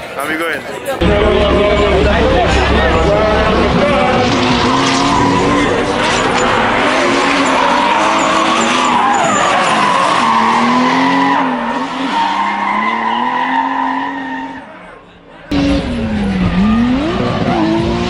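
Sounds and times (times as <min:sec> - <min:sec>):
car engine revving: 0:01.0 - 0:18.0
tyres squealing: 0:03.9 - 0:15.0.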